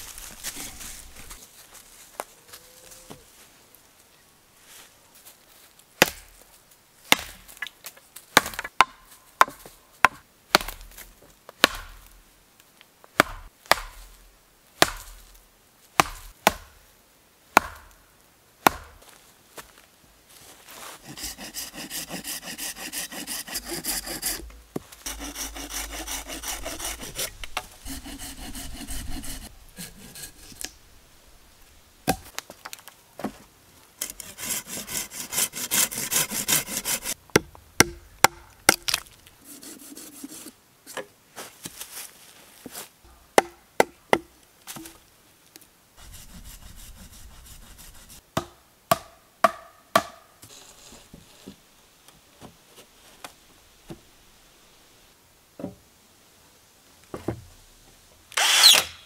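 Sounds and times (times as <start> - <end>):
hand saw cutting wood: 21.0 - 30.7, 34.0 - 37.2, 39.4 - 40.5, 58.4 - 59.0.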